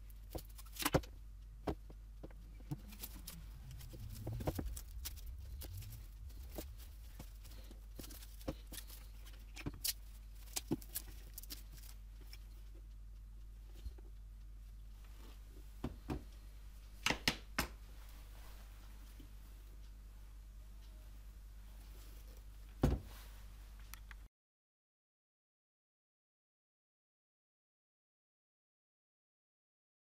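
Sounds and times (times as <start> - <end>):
faint low hum: 0.0 - 24.3
low rubbing and scraping: 2.3 - 9.2.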